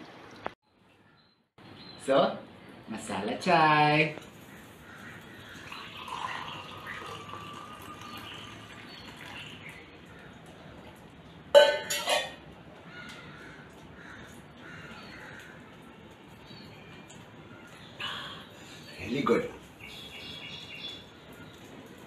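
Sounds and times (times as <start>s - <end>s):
liquid trickling into a cup: 5.4s - 10.2s.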